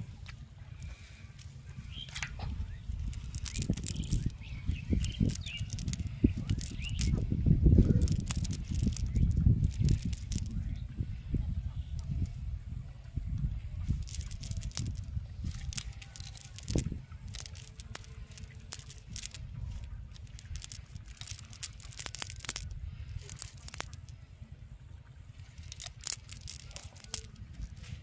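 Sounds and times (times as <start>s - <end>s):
steady low rumble: 0.0s - 28.0s
clicks and patters of catch falling: 2.0s - 10.6s, 14.0s - 24.1s, 25.6s - 28.0s
wet net rustling and crackling: 3.0s - 7.3s, 7.9s - 10.5s, 13.9s - 24.1s, 25.5s - 28.0s.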